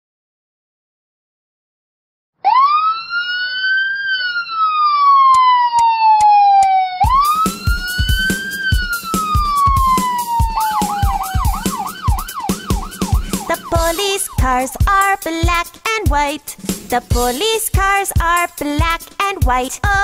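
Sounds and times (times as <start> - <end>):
police siren wailing: 2.4 - 15.1
drum beat: 7.0 - 20.0.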